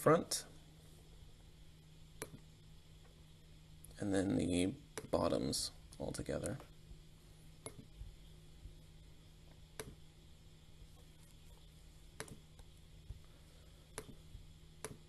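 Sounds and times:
faint steady hum: 0.0 - 15.0
computer mouse clicking: 7.6 - 7.9, 9.8 - 10.0, 12.2 - 12.7, 14.0 - 14.2, 14.8 - 15.0.

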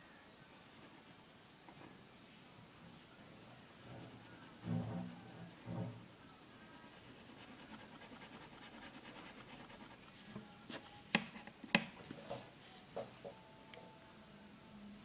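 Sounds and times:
pen scratching on paper: 6.9 - 10.0.

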